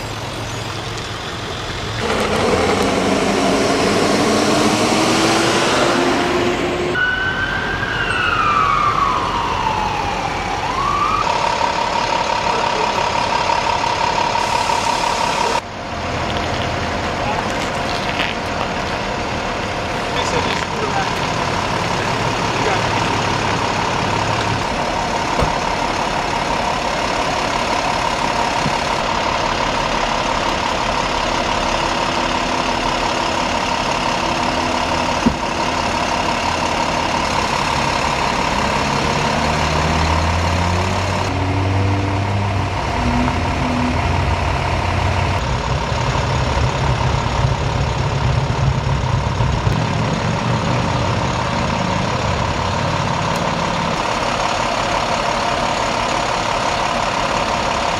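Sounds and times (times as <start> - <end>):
vehicle engines idling: 0.0 - 7.0, 8.2 - 57.9
heavy low rumble: 42.3 - 51.4.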